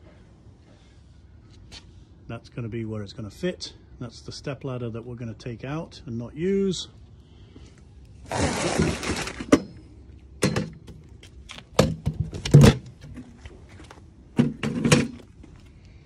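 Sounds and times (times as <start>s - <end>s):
metal stool scraping slide: 8.2s - 9.6s.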